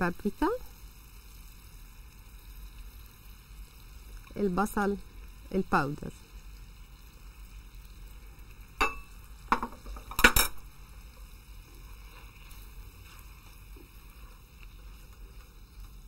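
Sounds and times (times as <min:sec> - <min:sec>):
metal spoon clinking on pan: 0:08.8 - 0:10.6.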